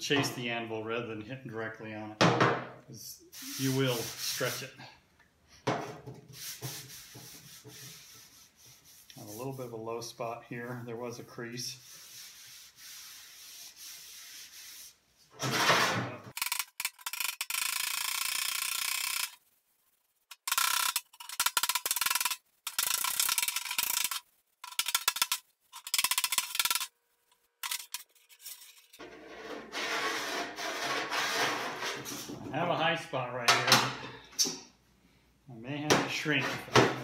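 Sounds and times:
hand rubbing over metal: 3.4s - 4.7s, 6.3s - 15.0s, 27.6s - 32.3s.

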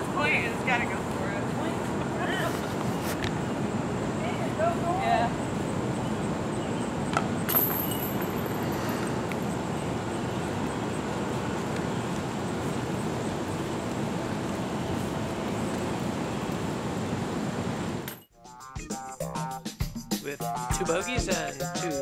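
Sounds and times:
rushing outdoor noise: 0.0s - 18.3s.

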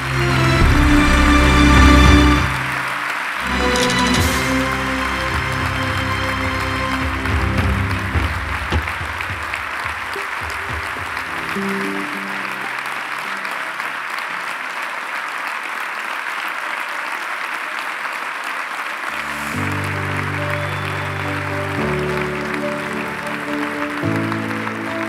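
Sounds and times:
music: 0.0s - 14.2s, 19.1s - 25.0s
audience applauding: 0.0s - 25.0s.

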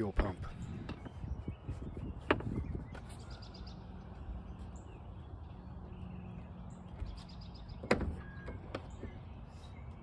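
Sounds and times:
birds chirping: 0.0s - 10.0s.

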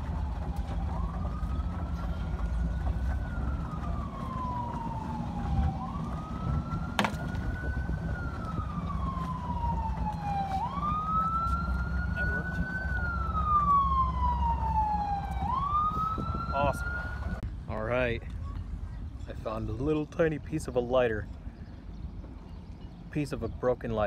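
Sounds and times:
siren wailing: 0.0s - 17.4s.

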